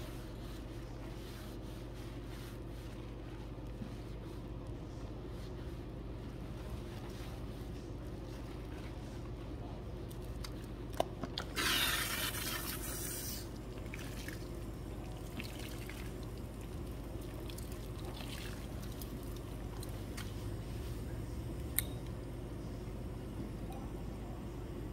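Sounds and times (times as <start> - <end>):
hands squishing suds: 10.0 - 20.8
water spraying through hair: 11.6 - 14.4.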